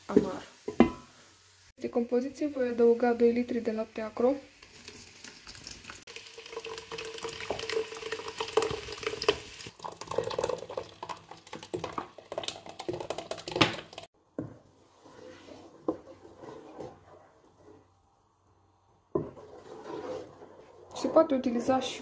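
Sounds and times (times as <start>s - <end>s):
wooden spoon stirring: 4.6s - 9.4s, 10.2s - 22.0s
milk pouring into hot pot: 4.6s - 14.1s.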